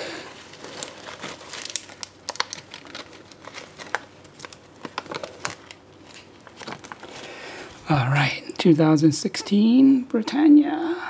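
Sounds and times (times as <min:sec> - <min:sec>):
plastic packaging crinkling: 0:00.1 - 0:07.8.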